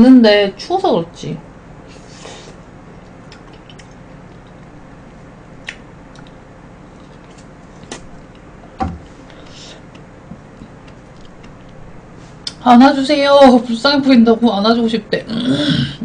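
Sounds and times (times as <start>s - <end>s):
low room hum: 0.0s - 16.0s
mouth clicks and smacks: 3.3s - 4.7s, 5.6s - 6.4s.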